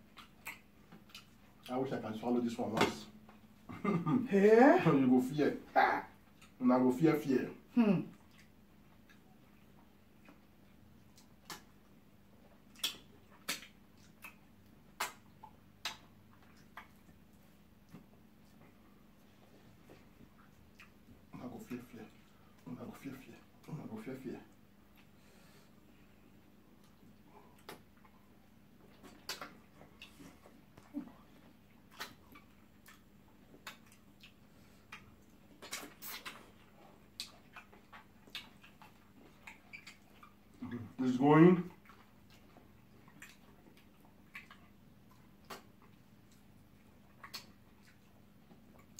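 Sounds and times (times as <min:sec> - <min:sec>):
wet mouth smacks: 0:00.1 - 0:01.4, 0:11.2 - 0:11.8, 0:12.7 - 0:17.1, 0:26.8 - 0:28.2, 0:28.8 - 0:30.9, 0:31.9 - 0:40.4, 0:43.1 - 0:46.4, 0:47.1 - 0:48.1.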